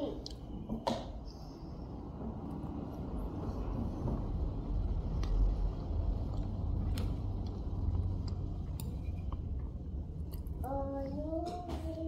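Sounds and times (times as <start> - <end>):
low rumble: 1.7 - 11.3.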